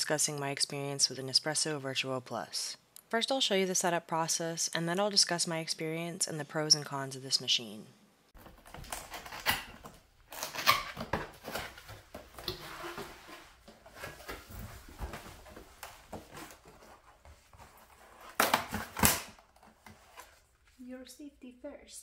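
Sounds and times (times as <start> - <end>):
cardboard box rustling: 10.6 - 19.0.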